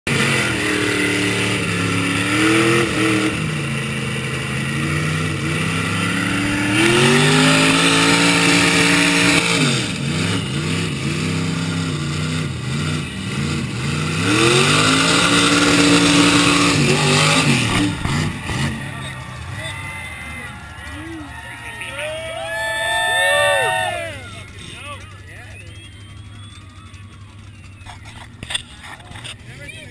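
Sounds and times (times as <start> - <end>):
diesel engine revving: 0.1 - 29.9.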